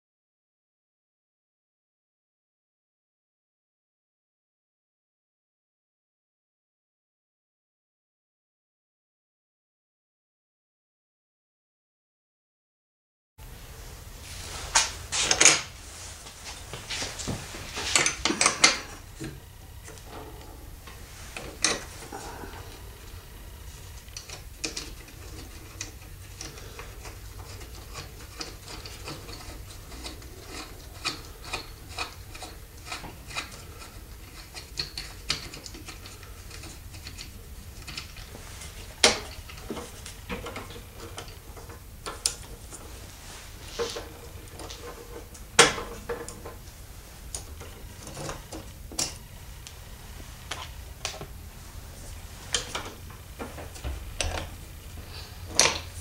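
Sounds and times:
low steady hum: 13.4s - 56.0s
wood rubbing and scraping: 13.4s - 56.0s.

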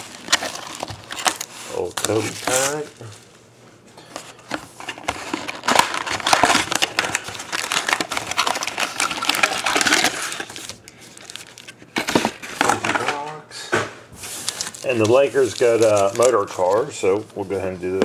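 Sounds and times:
foil packs crinkling: 0.0s - 3.3s, 4.7s - 13.3s, 14.2s - 18.0s.

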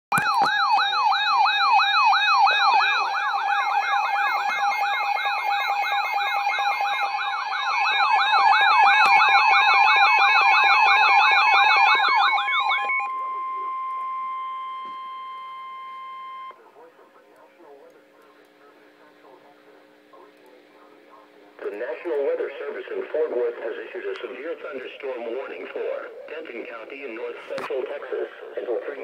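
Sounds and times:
fast rising siren: 0.1s - 16.5s
beeping: 2.6s - 16.6s.

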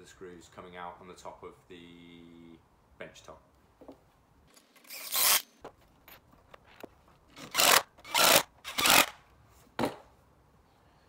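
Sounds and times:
cordless drill driving screws: 4.6s - 5.6s, 7.3s - 9.2s.

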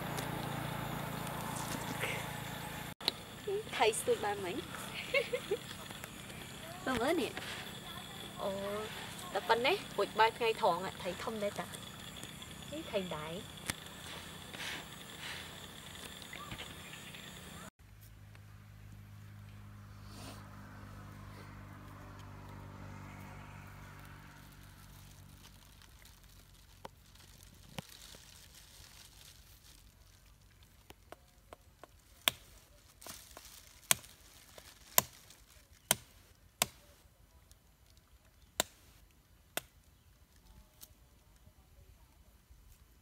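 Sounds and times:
low hum: 0.0s - 26.1s
dry twigs snapping: 25.0s - 36.8s.

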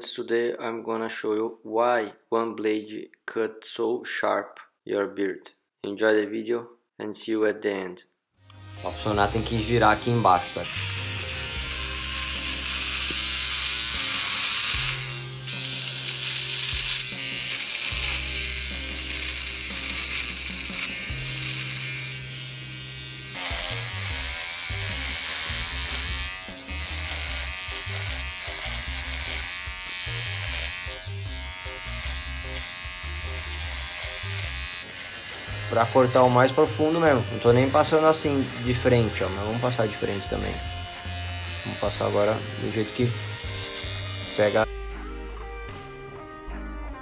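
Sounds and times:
electric beard trimmer cutting hair: 8.4s - 44.7s
background music with bass line: 35.5s - 47.0s.

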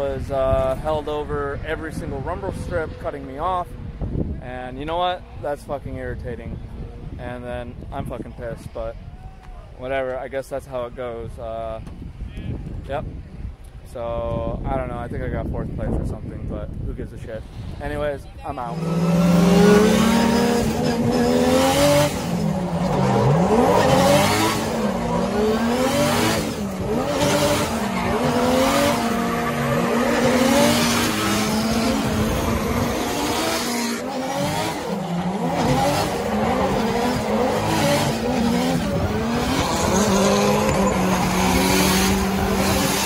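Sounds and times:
car engines revving: 18.6s - 43.0s
tyres squealing: 18.7s - 42.9s.

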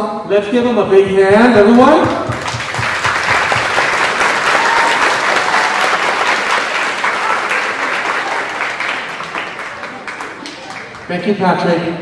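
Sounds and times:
group applauding: 1.7s - 11.2s.

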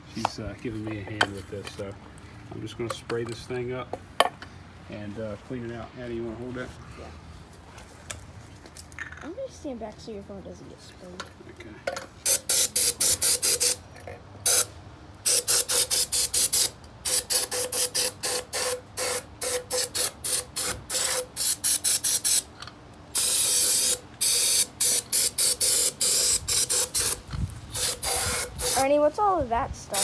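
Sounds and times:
aerosol can spraying in bursts: 12.2s - 13.8s, 14.5s - 22.5s, 23.2s - 29.0s.

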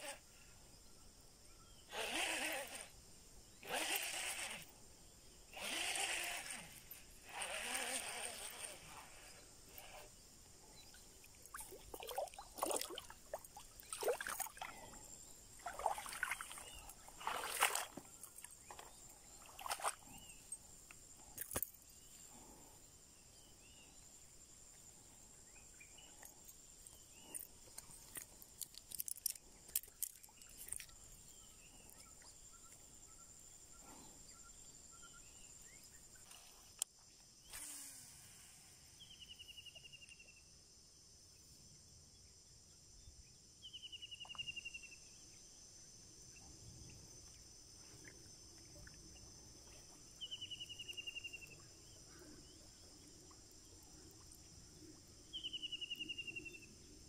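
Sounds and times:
faint chirps: 0.0s - 28.7s, 29.4s - 40.6s, 43.0s - 57.0s
high-pitched insect drone: 1.7s - 20.8s.

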